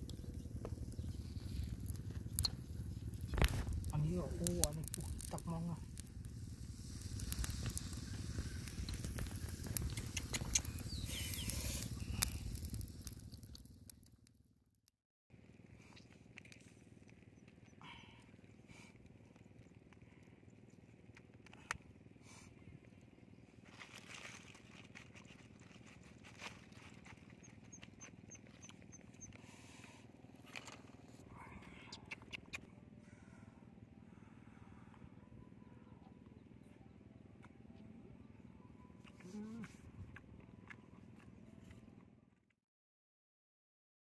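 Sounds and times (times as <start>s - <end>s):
low fire rumble: 0.0s - 14.1s
snails sizzling on a grill: 0.0s - 14.2s
faint high chirps: 9.8s - 12.8s.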